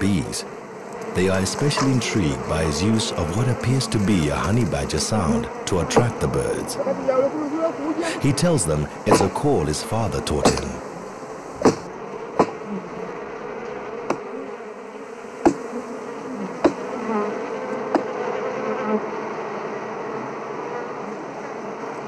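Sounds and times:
bees buzzing: 0:00.0 - 0:22.0
axe chopping wood: 0:11.6 - 0:12.6.

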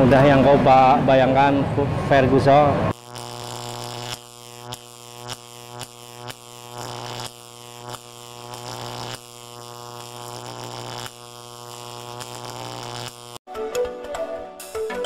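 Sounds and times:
low electric buzzing drone: 0:00.0 - 0:13.4
sharp electric crackles: 0:02.9 - 0:13.4.

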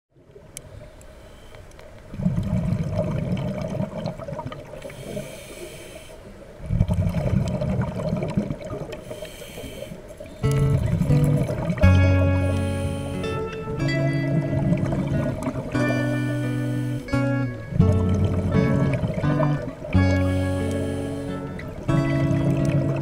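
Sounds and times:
regulator inhale hiss: 0:00.6 - 0:01.7, 0:04.8 - 0:06.4, 0:09.0 - 0:10.4, 0:12.3 - 0:13.5, 0:16.1 - 0:17.2, 0:20.2 - 0:21.6
exhaled air bubbling underwater: 0:02.1 - 0:23.0
music: 0:10.4 - 0:23.0.

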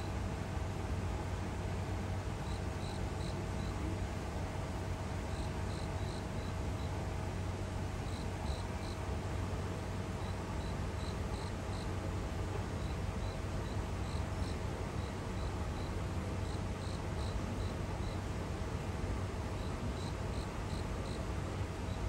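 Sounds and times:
low background hum: 0:00.0 - 0:22.0
crickets chirping: 0:02.4 - 0:03.7, 0:05.3 - 0:06.9, 0:08.0 - 0:09.0, 0:10.2 - 0:11.9, 0:12.8 - 0:18.2, 0:19.5 - 0:21.3.

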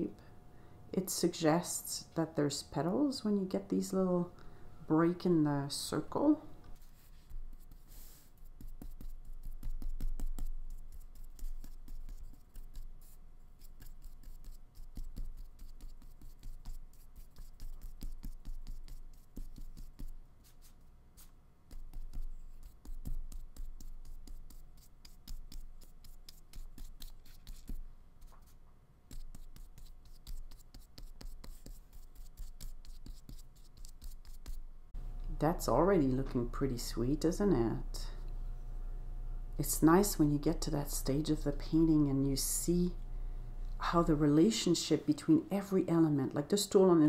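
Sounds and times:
brush scratching paint on paper: 0:06.8 - 0:34.7.

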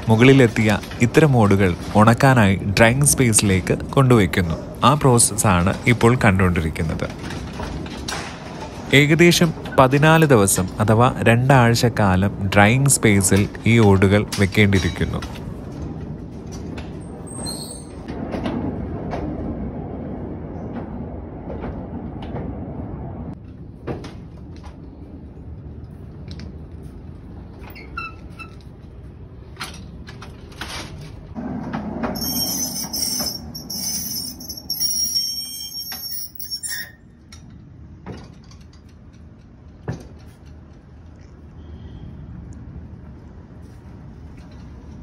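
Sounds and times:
trolley rumbling on rails: 0:00.0 - 0:41.1
high squeaking: 0:32.1 - 0:37.2.

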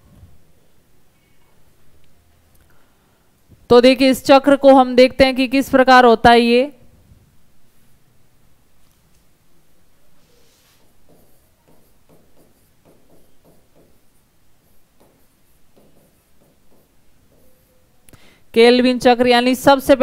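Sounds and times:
stylus tapping on whiteboard screen: 0:11.0 - 0:14.1, 0:15.0 - 0:17.7.

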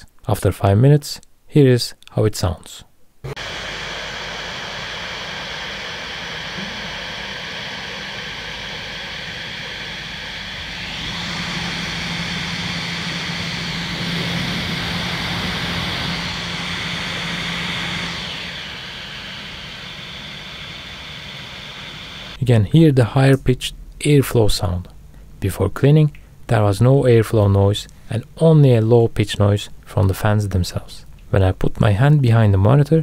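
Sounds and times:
laptop fans rushing air: 0:03.3 - 0:22.4.

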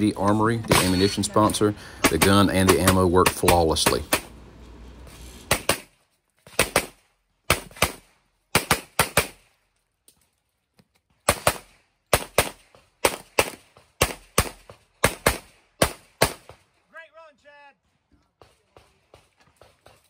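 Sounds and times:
pistol shots in quick pairs: 0:05.5 - 0:05.9, 0:06.5 - 0:09.5, 0:11.3 - 0:16.6.

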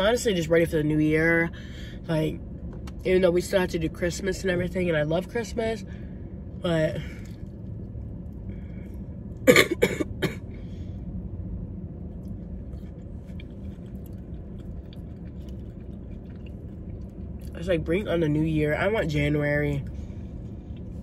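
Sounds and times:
low background hum: 0:00.0 - 0:21.0
person coughing: 0:09.4 - 0:10.5.

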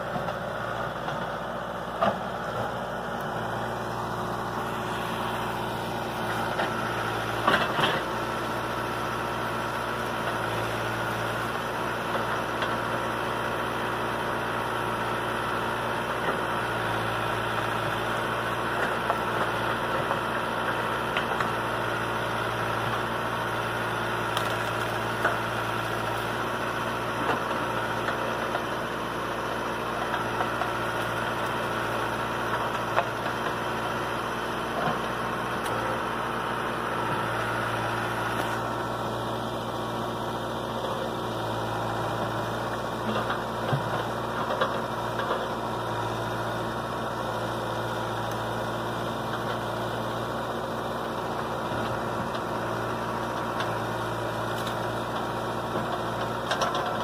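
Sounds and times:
diesel engine running: 0:00.0 - 0:57.0
brush cracking: 0:24.3 - 0:25.2.

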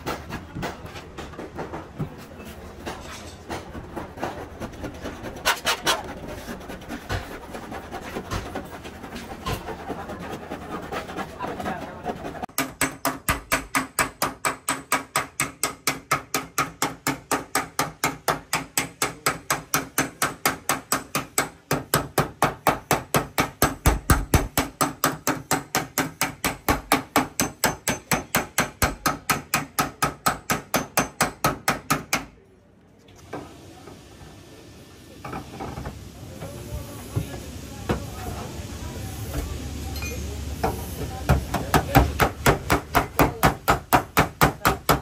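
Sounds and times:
hammer beating sheet metal: 0:12.4 - 0:32.3, 0:41.3 - 0:45.0.

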